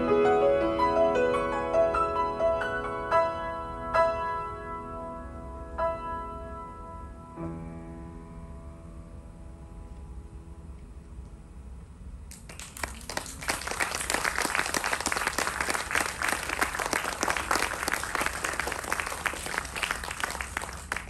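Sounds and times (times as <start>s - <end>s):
audience applauding: 12.3s - 21.0s.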